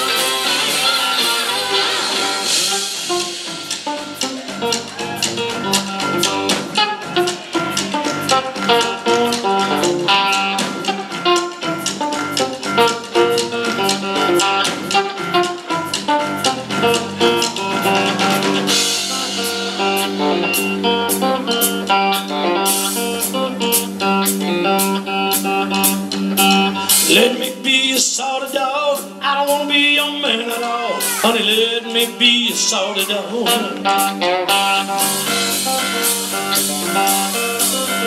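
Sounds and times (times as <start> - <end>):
cymbals: 0.0 - 27.5
bass: 0.0 - 38.0
drum kit: 0.0 - 38.0
electric guitar: 0.0 - 38.0.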